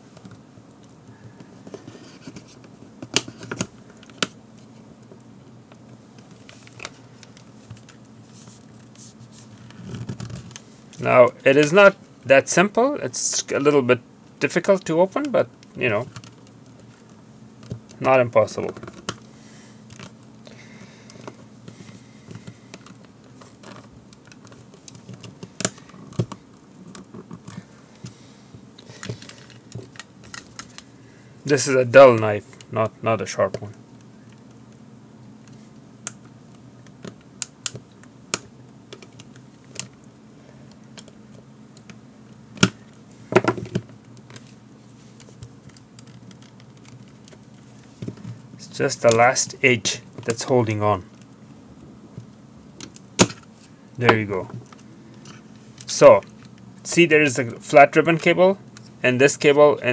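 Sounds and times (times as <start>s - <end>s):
plastic scraping and handling: 21.1s - 28.2s, 28.8s - 30.9s.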